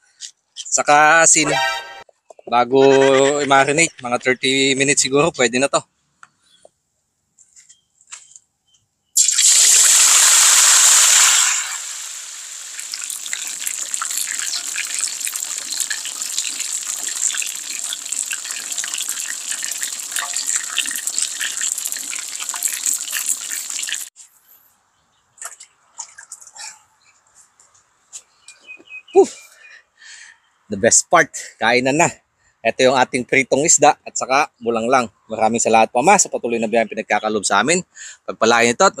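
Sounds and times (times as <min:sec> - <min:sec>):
fish sizzling in hot oil: 0:09.2 - 0:24.2.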